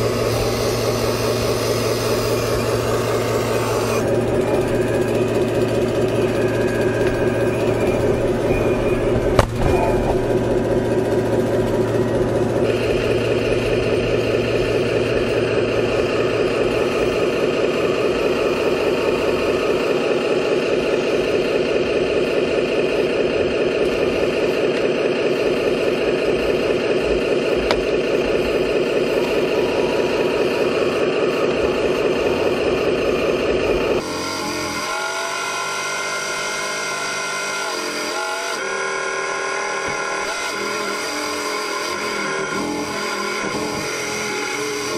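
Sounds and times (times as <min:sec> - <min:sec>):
hydraulic pump whining: 0:00.0 - 0:44.9.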